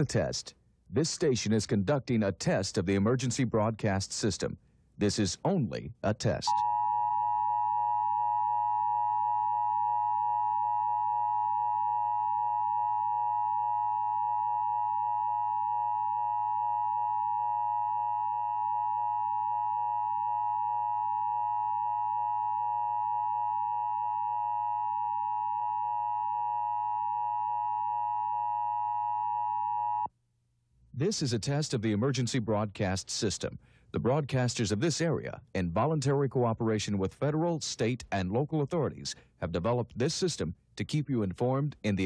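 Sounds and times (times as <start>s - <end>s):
two-tone attention signal: 6.5s - 22.4s.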